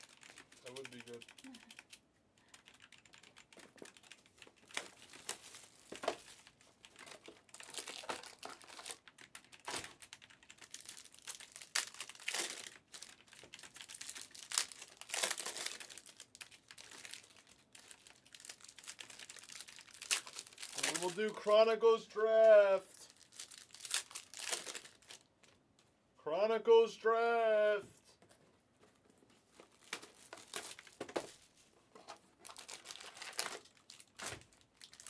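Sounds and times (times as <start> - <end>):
plastic wrapping crinkling: 3.6 - 21.4, 23.1 - 25.6, 29.0 - 35.0.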